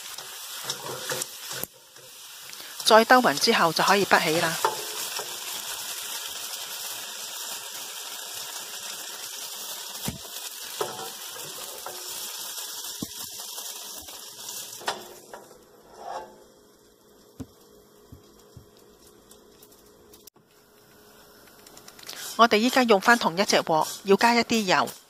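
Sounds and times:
spatula scraping a wok: 0.0 - 2.7, 10.7 - 12.5, 15.8 - 16.5, 23.4 - 25.0
noodles sizzling in a wok: 0.0 - 25.0.

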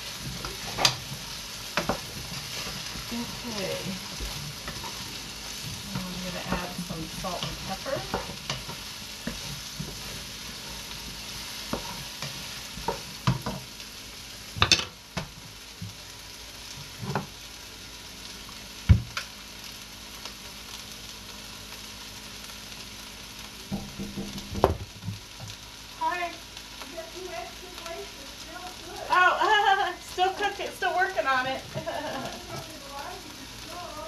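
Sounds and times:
vegetables sizzling in a pot: 0.0 - 34.0
sharp knocks and clatters: 23.7 - 25.2.

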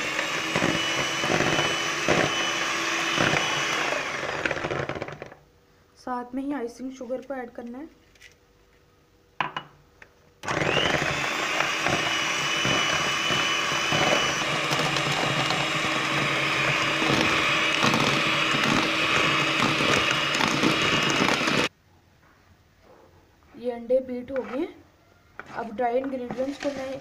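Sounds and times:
electric hand mixer whining: 0.0 - 5.4, 10.4 - 21.7.

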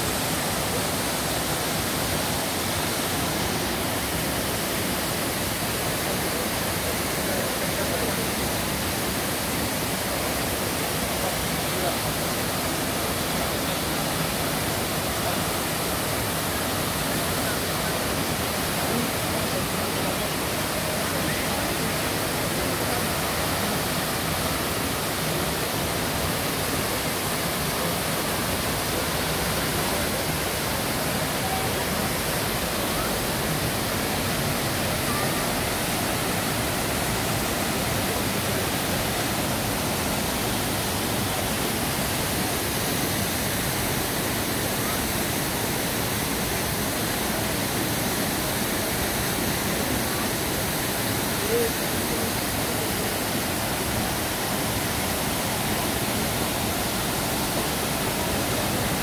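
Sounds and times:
waterfall rushing: 0.0 - 59.0.

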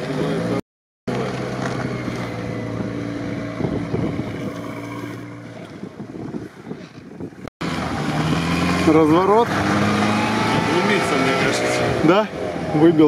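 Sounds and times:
vehicle engine running: 0.0 - 5.8.

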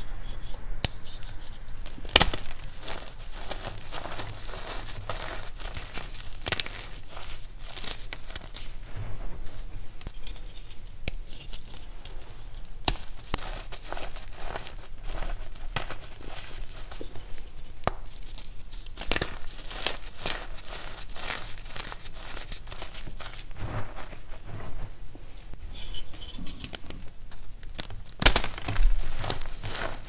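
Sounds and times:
chalk crumbling and crackling: 0.0 - 30.0
chalk block crunching: 1.0 - 8.8, 10.1 - 24.6, 27.7 - 30.0.

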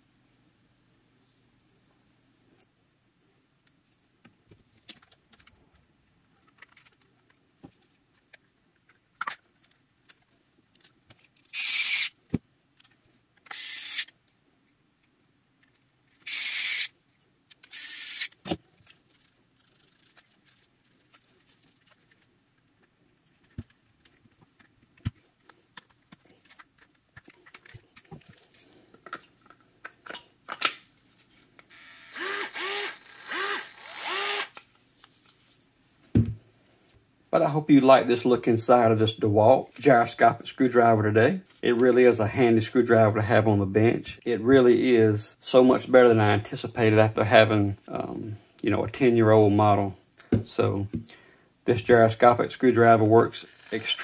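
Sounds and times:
plastic parts clicking and tapping: 3.6 - 5.6, 6.4 - 11.5, 22.8 - 30.8
screwdriver motor whirring: 11.5 - 12.1, 13.4 - 14.1, 16.2 - 16.9, 17.6 - 18.4, 31.7 - 34.6, 53.4 - 54.0.

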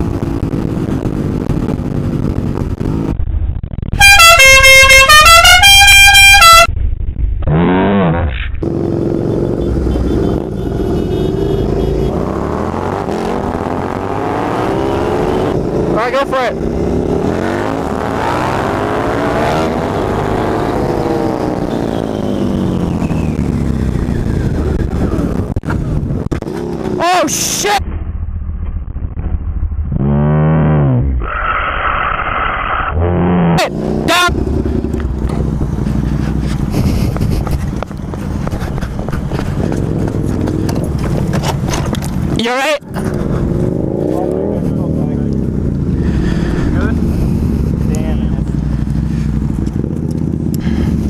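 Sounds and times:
wind noise: 0.0 - 4.9, 19.6 - 26.8, 34.3 - 44.1
melodic horn playing a tune: 4.0 - 6.7
motorcycle engine running: 8.6 - 14.0, 33.4 - 51.0.

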